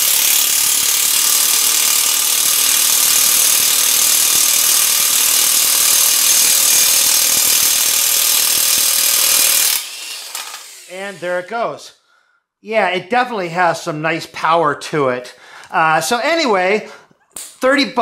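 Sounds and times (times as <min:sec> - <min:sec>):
impact wrench hammering: 0:00.0 - 0:11.0.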